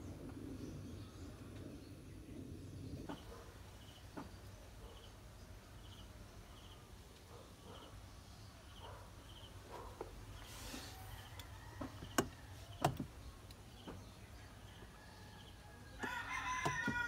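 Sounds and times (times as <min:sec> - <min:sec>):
low hum: 0:00.0 - 0:04.0
insect chirping: 0:05.8 - 0:06.8.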